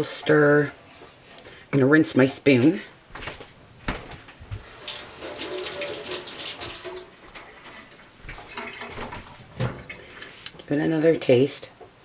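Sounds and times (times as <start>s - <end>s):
kitchen tap running into sink: 4.6s - 7.2s, 8.3s - 9.4s.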